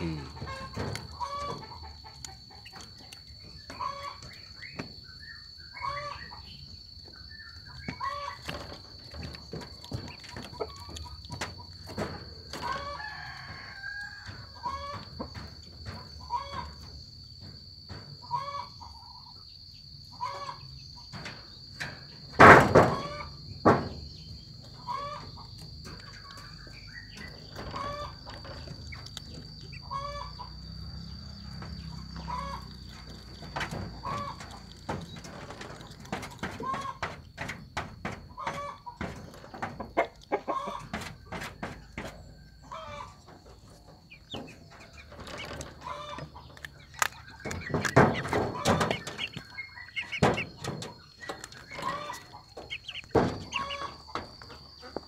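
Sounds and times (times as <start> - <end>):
animal chewing and crunching: 6.8 - 13.8, 25.7 - 41.6, 42.8 - 55.0.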